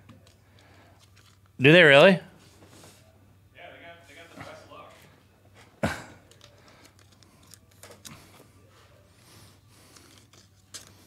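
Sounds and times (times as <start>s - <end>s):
trading cards rustling: 0.1s - 1.6s, 6.2s - 8.5s, 9.2s - 11.0s.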